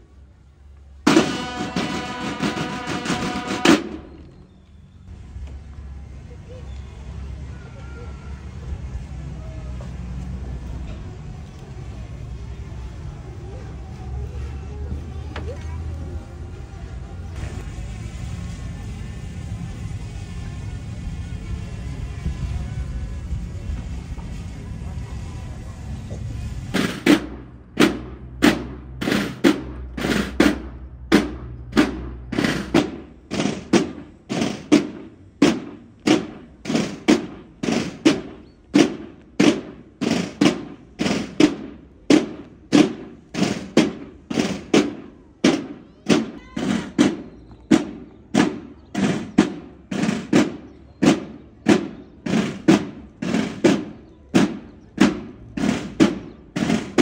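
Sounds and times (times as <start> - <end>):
snare and bass drum march: 1.0 - 4.2, 26.7 - 57.0.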